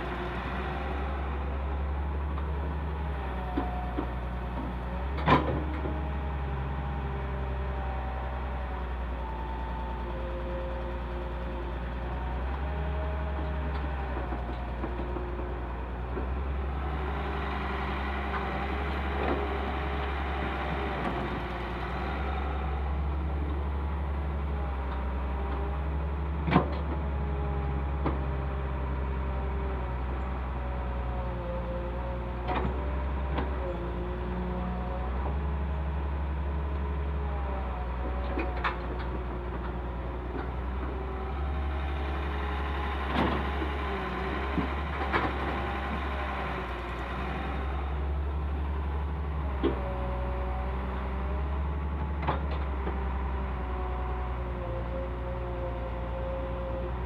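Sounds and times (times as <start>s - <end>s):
excavator diesel engine: 0.0s - 57.0s.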